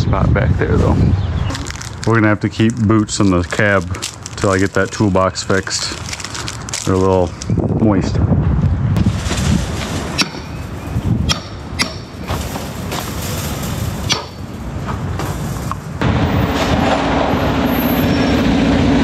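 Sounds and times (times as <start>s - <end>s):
footsteps crunching on gravel: 1.5s - 7.5s.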